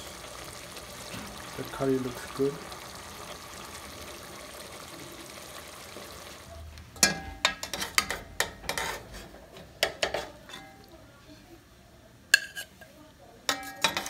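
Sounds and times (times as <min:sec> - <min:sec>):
faint steady hiss: 0:00.0 - 0:13.8
metal spoon clinking against pot: 0:07.0 - 0:09.0, 0:09.8 - 0:10.9, 0:12.3 - 0:12.8, 0:13.5 - 0:14.0.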